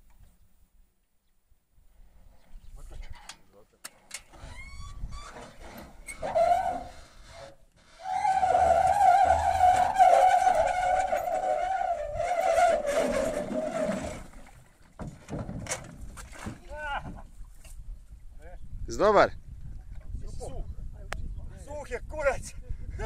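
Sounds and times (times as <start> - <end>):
boat hull squealing on trailer: 4.3 - 14.6.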